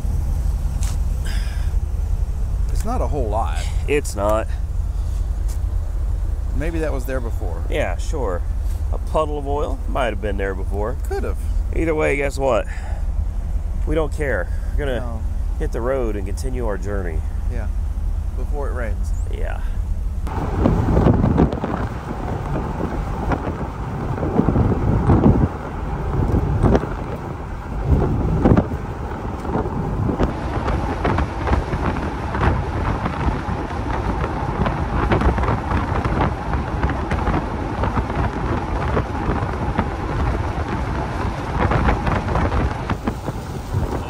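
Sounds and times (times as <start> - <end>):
rain: 0.0 - 1.8, 20.3 - 44.0
road noise: 0.0 - 44.0
wind buffeting microphone: 0.0 - 44.0.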